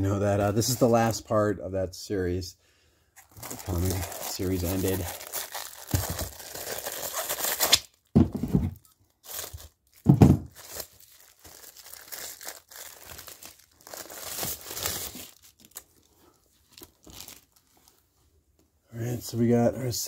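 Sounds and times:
plastic bag crinkling: 0:03.2 - 0:08.1, 0:08.8 - 0:18.0.

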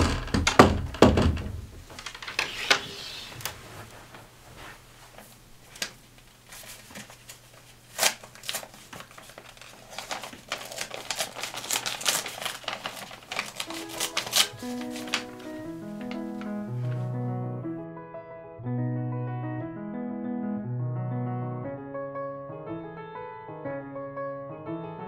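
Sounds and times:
paper rustling and crinkling: 0:02.0 - 0:17.3
soft music: 0:13.4 - 0:25.0.

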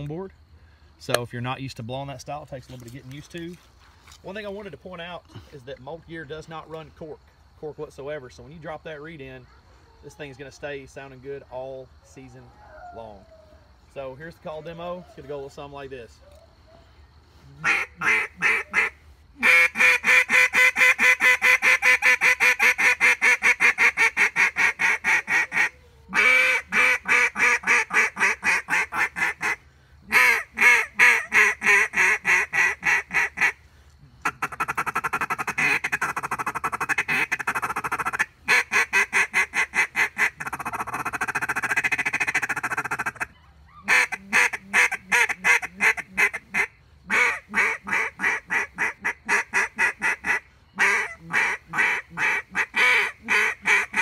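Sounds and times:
duck call quacks: 0:17.6 - 0:33.6, 0:34.2 - 0:54.0.

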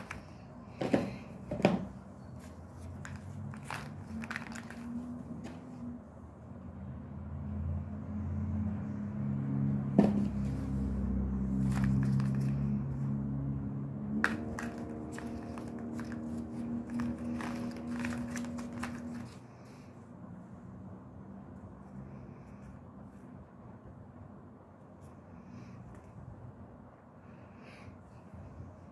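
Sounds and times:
low steady drone: 0:12.4 - 0:17.9
plastic capsules knocking on table: 0:14.2 - 0:15.8.

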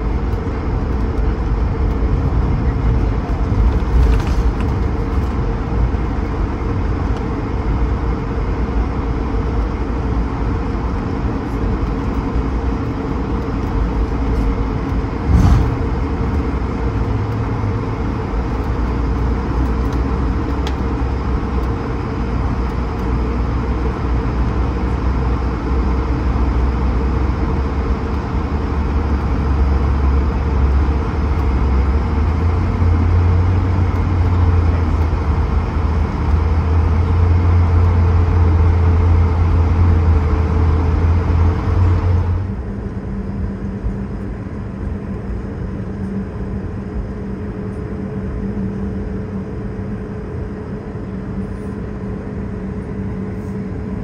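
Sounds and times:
aircraft cabin rumble: 0:00.0 - 0:54.0
brief thump: 0:15.3 - 0:15.9.

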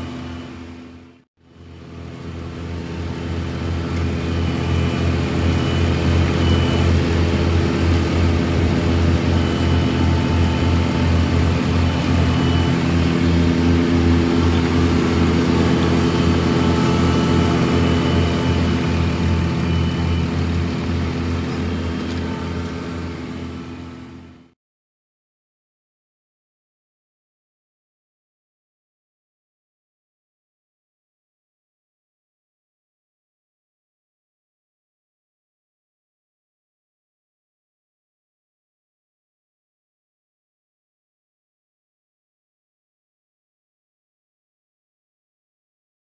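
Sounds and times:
diesel engine droning: 0:00.0 - 0:24.6.

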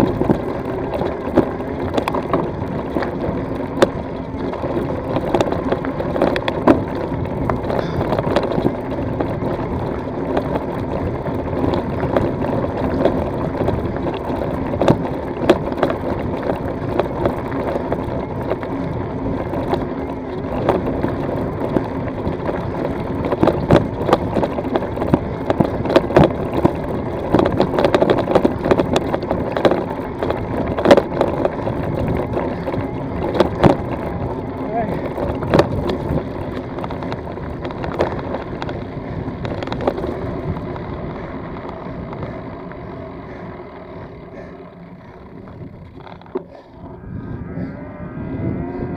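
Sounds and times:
stones knocking and rattling: 0:00.0 - 0:42.3
bike tyres crunching over gravel: 0:00.0 - 0:48.9
steady hum: 0:00.0 - 0:48.9.

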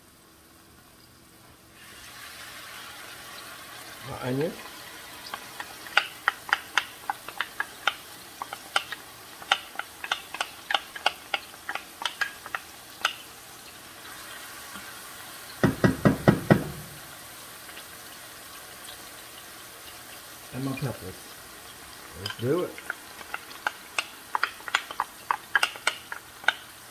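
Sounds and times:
onion frying in oil: 0:00.0 - 0:26.9
wooden spoon tapping plastic container: 0:05.3 - 0:13.2, 0:15.6 - 0:16.9, 0:22.2 - 0:26.6.

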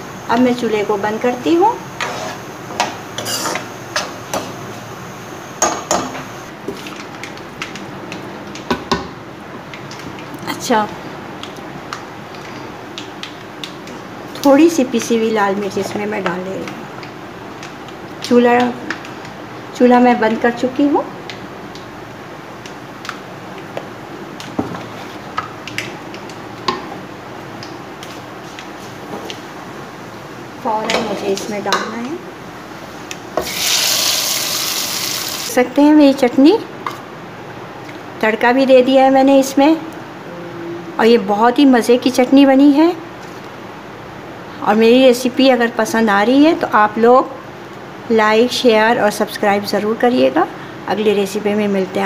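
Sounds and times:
hot oil sizzling in a pan: 0:33.4 - 0:35.6.

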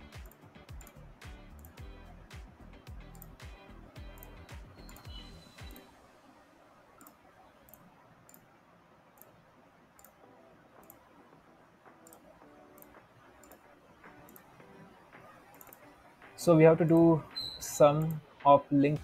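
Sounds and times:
faint computer mouse clicks: 0:10.0 - 0:10.2, 0:15.5 - 0:15.9.

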